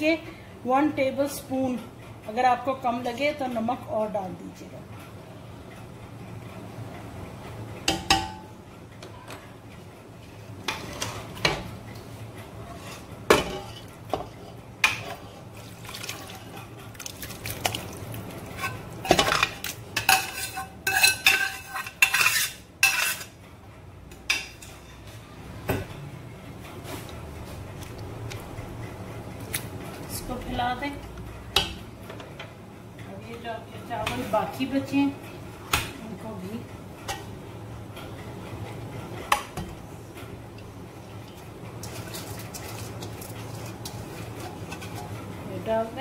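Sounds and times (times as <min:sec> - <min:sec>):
spatula scraping cooking pot: 0:10.5 - 0:11.5, 0:12.7 - 0:15.5, 0:18.4 - 0:23.4.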